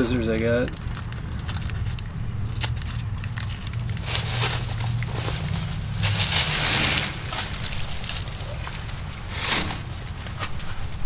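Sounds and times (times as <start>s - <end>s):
steady low hum: 0.0s - 11.0s
foam rustling: 2.6s - 11.0s.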